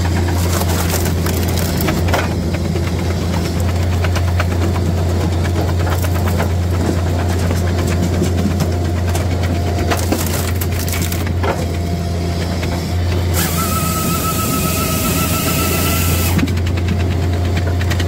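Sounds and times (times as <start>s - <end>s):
wood cracking and splintering: 0.0s - 11.9s
machine droning: 0.0s - 18.0s.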